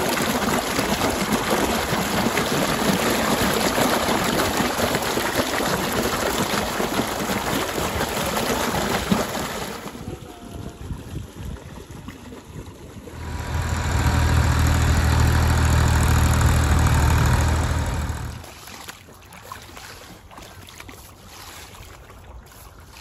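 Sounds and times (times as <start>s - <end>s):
water gushing into standing water: 0.0s - 10.1s, 13.1s - 18.7s.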